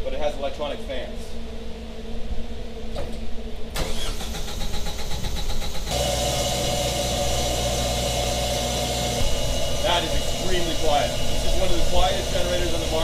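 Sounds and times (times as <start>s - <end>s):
generator engine running quietly: 3.0s - 13.0s
generator starter cranking: 3.8s - 13.0s.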